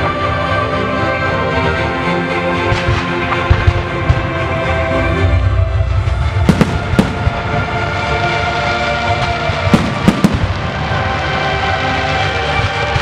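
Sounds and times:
music playing: 0.0s - 13.0s
fireworks bursting with bangs: 2.7s - 4.4s, 6.4s - 8.0s, 9.1s - 11.6s.

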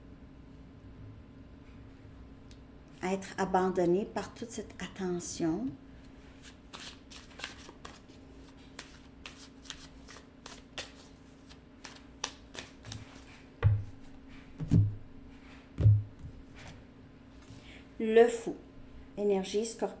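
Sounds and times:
cards being shuffled: 6.4s - 14.9s
dull thumps on tabletop: 13.6s - 14.0s, 14.6s - 15.0s, 15.8s - 16.4s.

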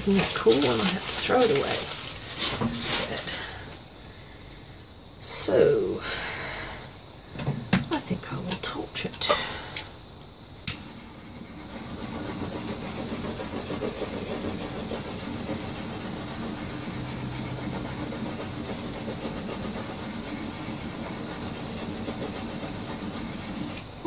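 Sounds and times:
gas torch burning: 0.0s - 4.0s, 10.5s - 24.0s.

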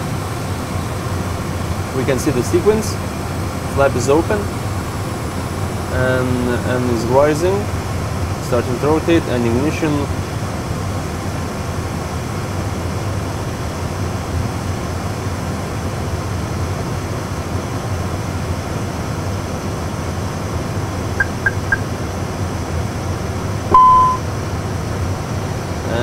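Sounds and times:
flight simulator cockpit hum: 0.0s - 26.0s
quick high blips: 21.2s - 21.9s, 23.7s - 24.2s.

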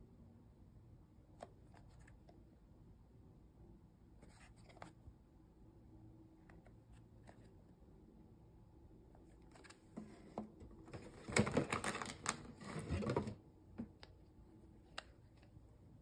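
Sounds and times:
packaging rustling: 10.9s - 13.4s.

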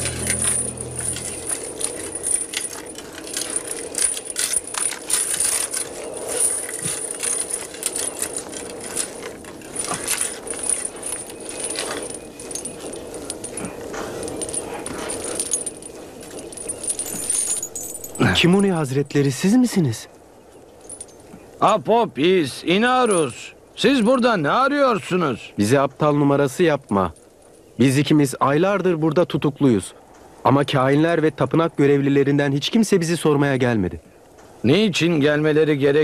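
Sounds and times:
heavy chains clinking: 0.0s - 19.6s, 20.7s - 21.8s, 22.8s - 23.4s.

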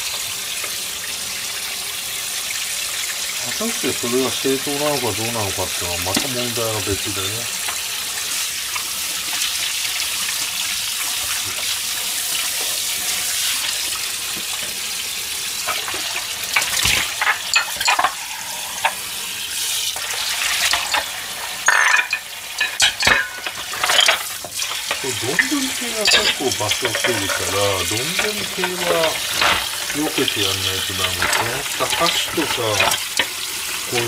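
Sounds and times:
tap running into metal sink: 4.8s - 7.8s
dishes clinking in metal basin: 6.0s - 7.0s, 15.6s - 19.0s, 20.0s - 34.0s.

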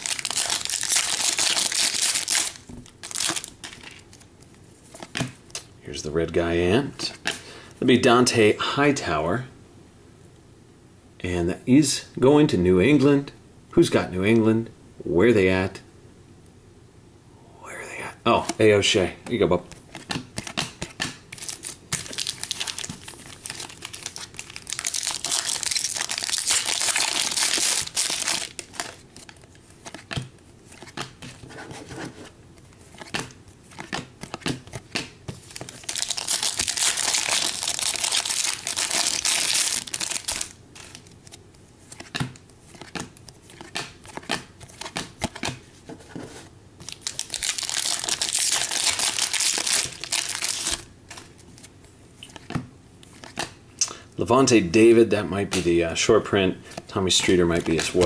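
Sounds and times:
foil wrappers crinkling and tearing: 0.0s - 4.1s, 21.3s - 29.4s, 35.4s - 41.4s, 46.8s - 51.2s, 56.7s - 58.0s
cards clicking and tapping: 33.0s - 35.7s, 42.0s - 46.0s, 55.5s - 55.7s, 56.7s - 58.0s.

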